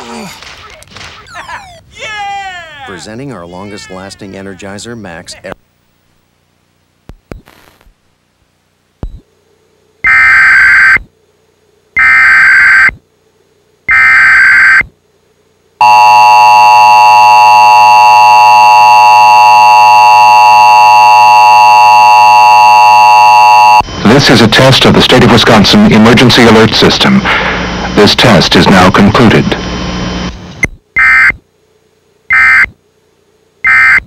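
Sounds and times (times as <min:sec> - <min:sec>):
steady two-tone attention signal: 0:15.8 - 0:23.8.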